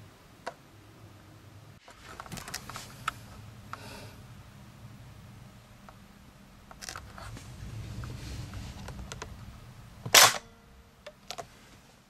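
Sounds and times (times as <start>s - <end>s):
airsoft gun snap: 10.1s - 10.5s.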